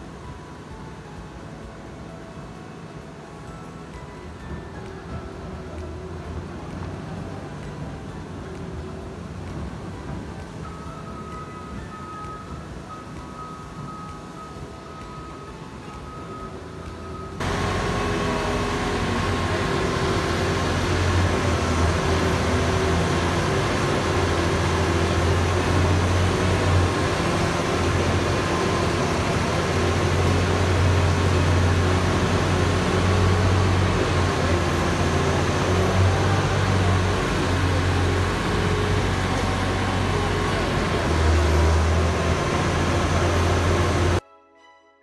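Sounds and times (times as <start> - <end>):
shredder machine running: 17.4 - 44.2
strong low hum: 17.4 - 44.2.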